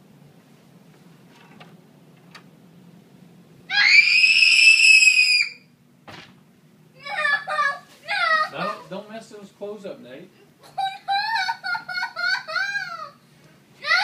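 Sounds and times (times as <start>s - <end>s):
child screaming in fright: 3.7s - 5.6s.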